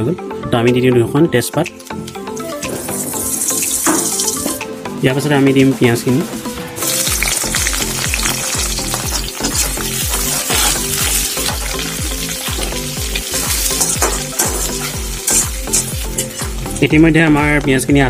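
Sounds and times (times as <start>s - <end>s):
onions sizzling in oil: 1.8s - 4.8s, 5.4s - 16.9s
spatula scraping pan: 9.1s - 11.7s.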